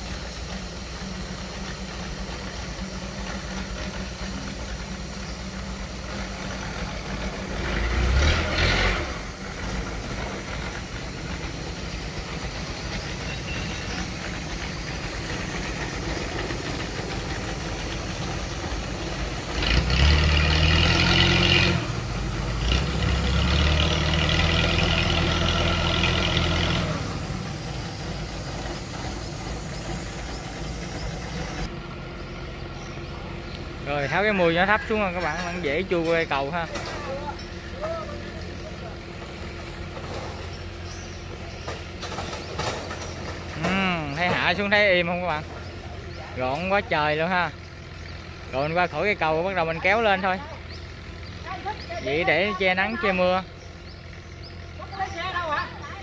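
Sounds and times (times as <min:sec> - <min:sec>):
boat engine running and revving: 0:00.0 - 0:31.7.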